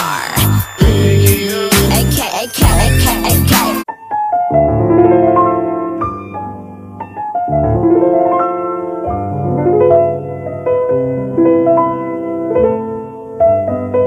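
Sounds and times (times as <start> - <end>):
hip-hop beat: 0.0 - 3.9
slow solo piano piece: 3.9 - 14.0.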